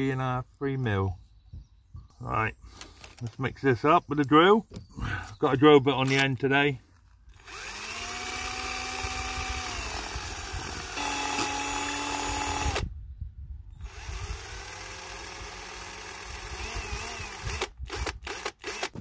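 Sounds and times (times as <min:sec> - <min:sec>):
electric drill motor whine: 0:07.3 - 0:12.9, 0:13.7 - 0:19.0.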